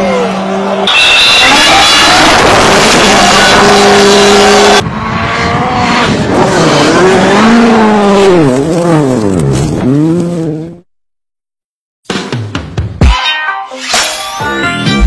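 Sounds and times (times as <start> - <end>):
rally car engine revving: 0.0 - 10.8.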